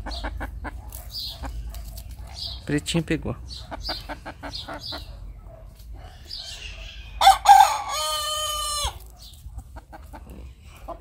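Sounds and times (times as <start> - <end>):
hens clucking: 0.0 - 11.0
rooster crowing: 7.2 - 9.0.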